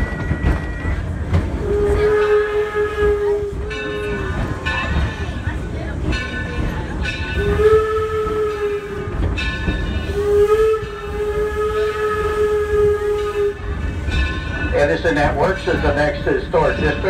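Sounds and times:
low rumble of moving train: 0.0s - 17.0s
steam whistle blasts: 1.6s - 3.9s, 7.4s - 9.4s, 10.1s - 13.8s.

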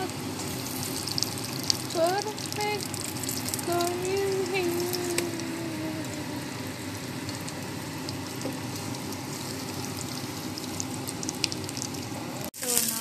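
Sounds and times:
omelette sizzling in a pan: 0.0s - 13.0s.

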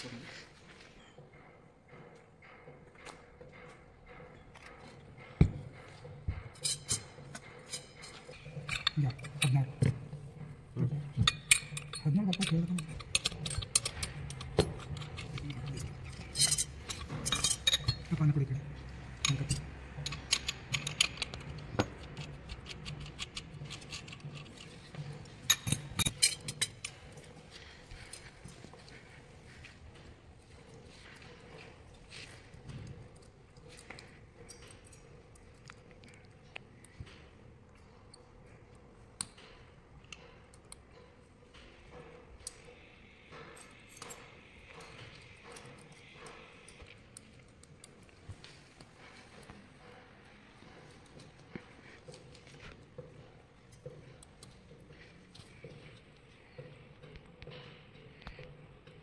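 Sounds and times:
tools clinking on metal bolts: 3.5s - 28.7s.

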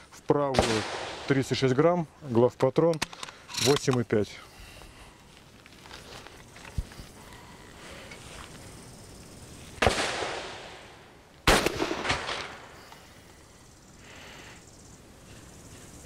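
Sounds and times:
gunshot echo: 0.5s - 1.4s, 9.8s - 12.8s
shotgun shots: 0.5s - 1.5s, 9.8s - 12.8s.

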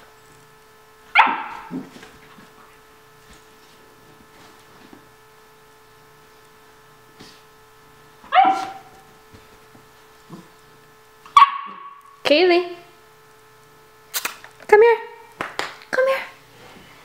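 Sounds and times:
puppy barking: 1.1s - 1.7s, 8.3s - 9.0s, 11.3s - 12.0s.

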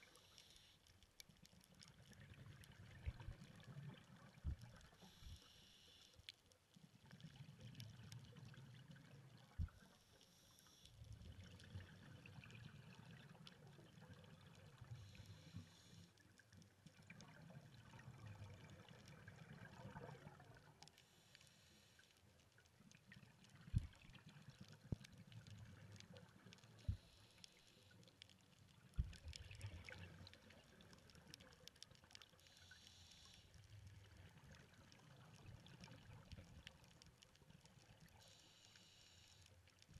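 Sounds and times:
underwater scuba bubbles: 0.0s - 39.9s
low underwater rumble: 1.9s - 4.9s, 23.1s - 27.2s, 28.8s - 31.6s.

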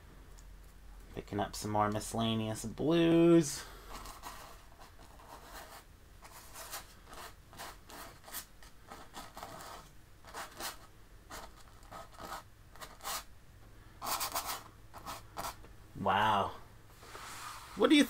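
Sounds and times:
paintbrush strokes on canvas: 17.0s - 18.0s.

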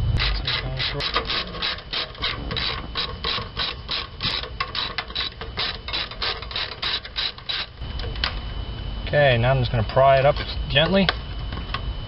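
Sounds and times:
hand ratchet clicking: 0.2s - 7.8s.

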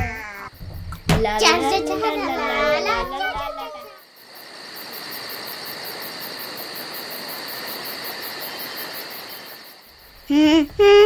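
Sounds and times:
crickets chirping: 0.0s - 11.0s
steady hiss: 0.0s - 11.0s.

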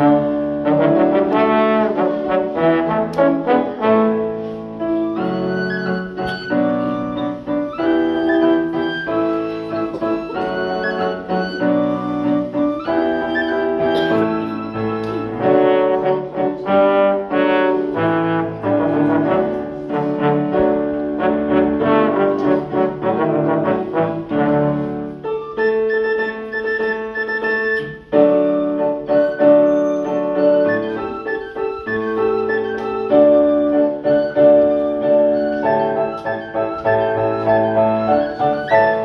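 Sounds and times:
trombone: 0.0s - 4.6s, 12.9s - 25.2s.

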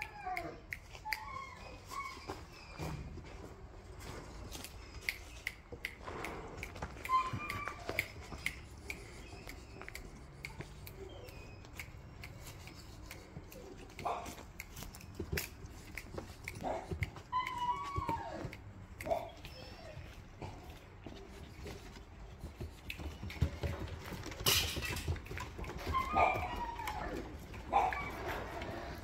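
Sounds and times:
puppy whimpers: 0.0s - 6.0s, 6.6s - 29.0s
clicks and taps in wire cage: 4.5s - 29.0s.

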